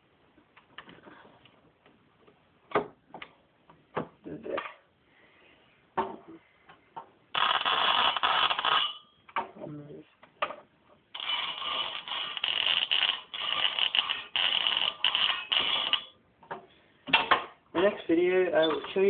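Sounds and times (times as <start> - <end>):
buzzing crackle of electric arcing: 7.3 - 9.0, 11.1 - 16.2.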